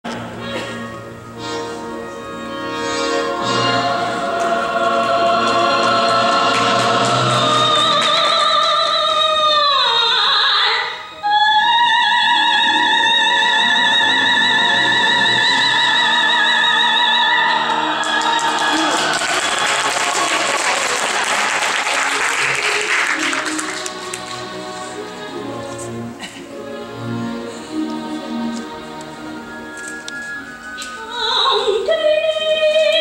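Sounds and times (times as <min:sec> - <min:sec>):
instrumental accompaniment: 0:00.1 - 0:08.6, 0:11.0 - 0:32.4
woman singing opera-like: 0:03.4 - 0:20.3, 0:30.9 - 0:33.0.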